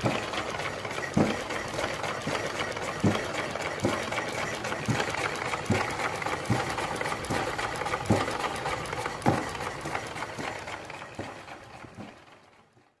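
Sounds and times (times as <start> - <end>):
small engine clattering: 0.0 - 13.0.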